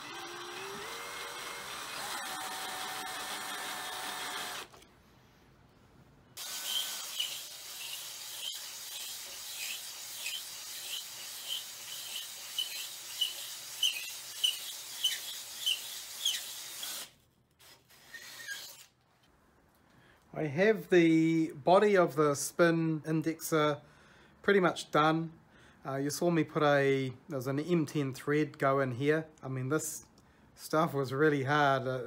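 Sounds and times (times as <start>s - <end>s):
cordless drill whining: 0.0s - 4.8s, 6.4s - 17.2s, 17.9s - 18.9s
hone scraping inside steel bore: 6.5s - 17.0s.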